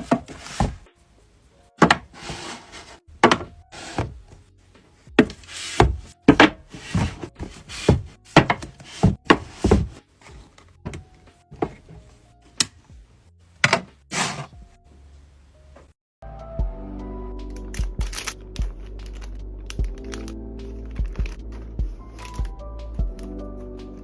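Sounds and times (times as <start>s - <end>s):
books sliding on a shelf: 0.0s - 0.9s, 1.8s - 4.2s, 5.2s - 10.6s, 13.6s - 14.6s
books knocking on a shelf: 5.2s - 10.0s.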